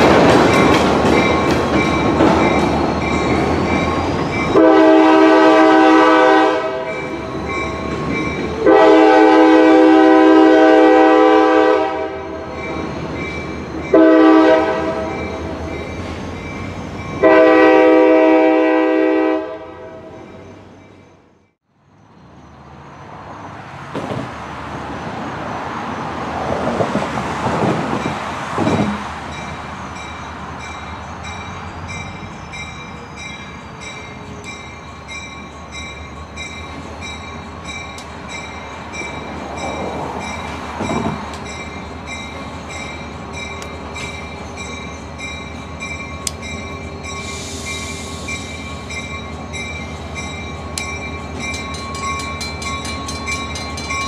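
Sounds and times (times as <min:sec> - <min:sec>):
train running noise: 0:00.0 - 0:54.0
locomotive air horn blasts: 0:04.6 - 0:07.1, 0:08.6 - 0:12.5, 0:13.9 - 0:15.3, 0:17.2 - 0:20.2
steady outdoor noise: 0:19.6 - 0:54.0.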